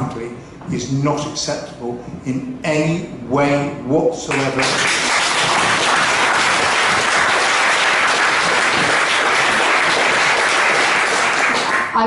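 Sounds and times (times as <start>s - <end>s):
audience applauding: 4.3s - 12.0s.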